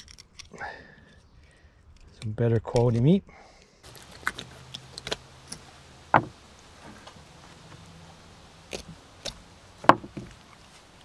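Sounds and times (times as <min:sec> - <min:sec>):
knife knocking on wooden board: 0:06.1 - 0:06.4, 0:09.8 - 0:10.3.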